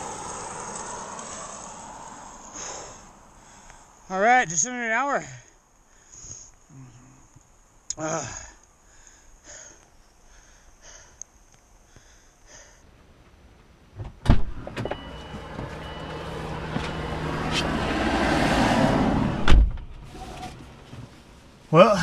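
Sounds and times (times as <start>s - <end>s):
car door slamming shut: 14.0s - 15.7s, 19.4s - 19.9s.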